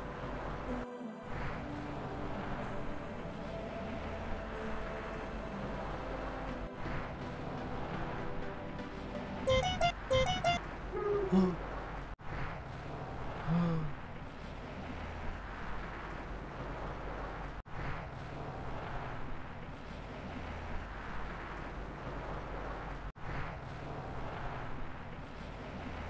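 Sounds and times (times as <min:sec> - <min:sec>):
traffic rumble: 0:10.5 - 0:26.0.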